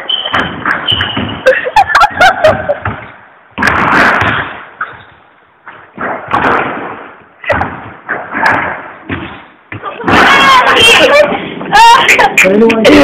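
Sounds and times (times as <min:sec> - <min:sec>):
loud bangs: 0:00.0 - 0:11.4.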